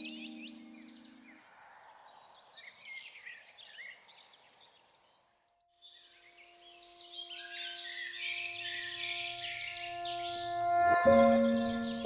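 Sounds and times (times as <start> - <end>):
soft sustained musical drone: 0.0 - 1.4, 5.9 - 12.0
songbirds chirping: 0.0 - 12.0.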